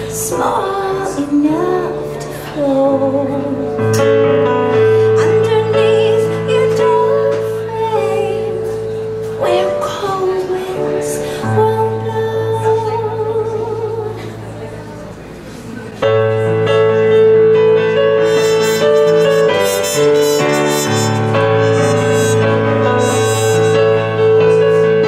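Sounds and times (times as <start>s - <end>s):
keyboard chords: 16.0s - 25.0s
small live band playing: 16.2s - 25.0s
wavering held note: 18.2s - 24.3s
trumpet: 18.2s - 24.5s.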